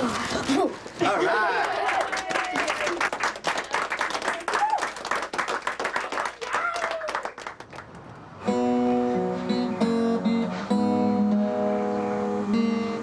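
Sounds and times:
people clapping: 0:01.1 - 0:08.2
strummed acoustic guitar: 0:08.4 - 0:13.0.

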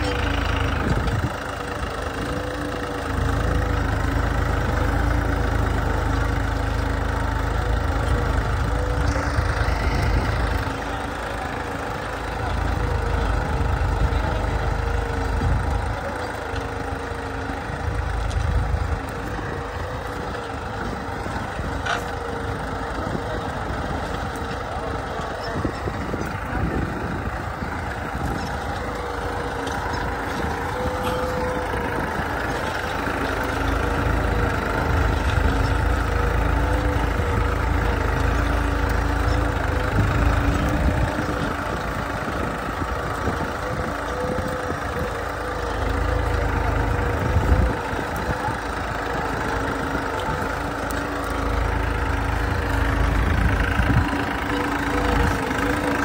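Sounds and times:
tractor diesel engine rumble: 0:00.0 - 0:56.0.

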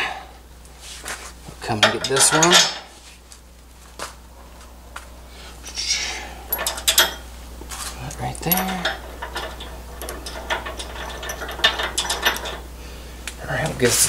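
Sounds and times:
metal bolts clinking: 0:01.6 - 0:02.9, 0:06.4 - 0:12.7.

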